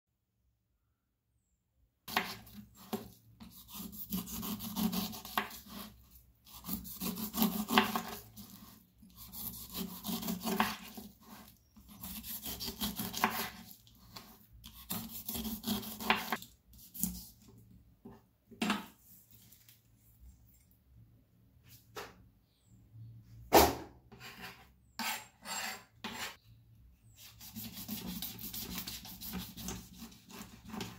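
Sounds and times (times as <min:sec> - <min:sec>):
knife sawing through pineapple rind: 0:02.1 - 0:17.3, 0:27.2 - 0:30.9.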